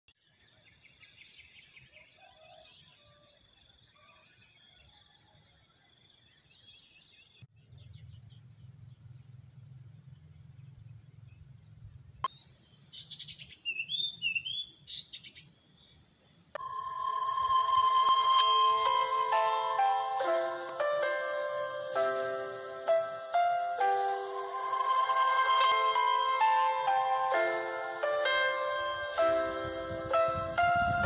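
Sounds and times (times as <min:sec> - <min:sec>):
insects chirping in pulsed trill: 0:07.5 - 0:13.0, 0:15.8 - 0:31.0.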